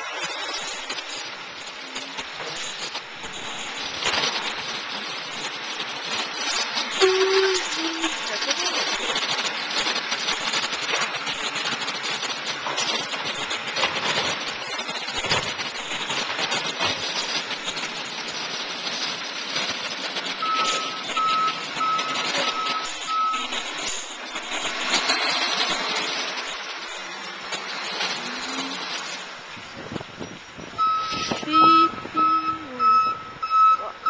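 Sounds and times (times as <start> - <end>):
backup alarm beeping: 20.4 - 23.7, 30.8 - 34.0.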